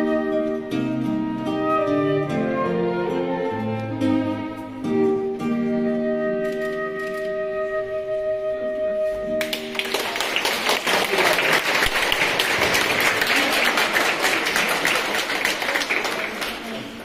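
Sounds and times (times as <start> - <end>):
live music held chord: 0.0 - 10.0
audience applauding: 9.4 - 17.0.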